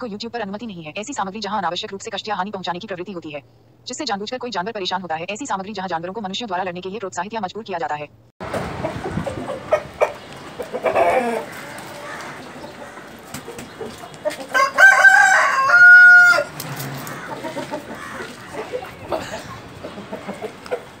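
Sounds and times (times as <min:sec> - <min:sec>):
rooster crowing: 0:09.5 - 0:13.2, 0:14.3 - 0:19.4.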